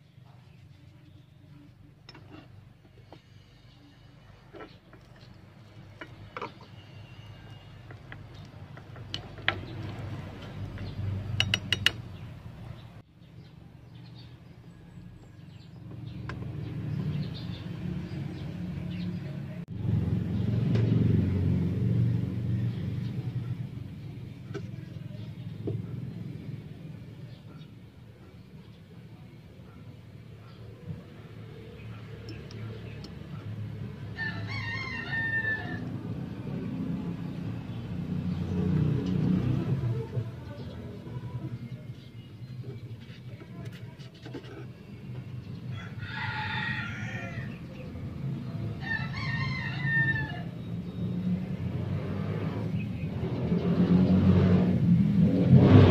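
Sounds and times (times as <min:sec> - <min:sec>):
rooster crowing: 0:34.1 - 0:36.2, 0:45.7 - 0:47.7, 0:48.7 - 0:50.6.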